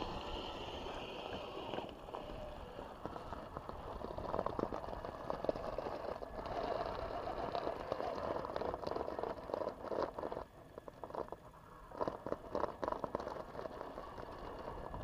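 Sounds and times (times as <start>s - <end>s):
electric motor whining: 0.0s - 9.4s.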